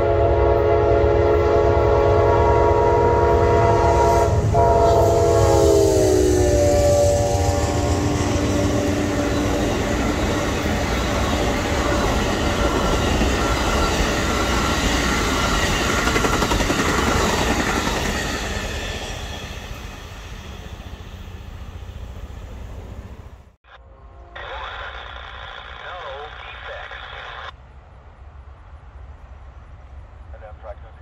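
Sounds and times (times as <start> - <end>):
train horn: 0.0 - 9.7
train wheels clattering on rails: 9.3 - 21.1.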